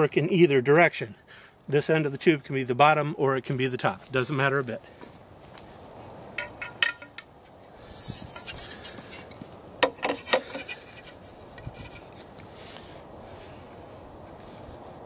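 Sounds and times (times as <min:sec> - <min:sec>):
metal tube scraping slide: 0:07.8 - 0:09.4, 0:10.0 - 0:12.3.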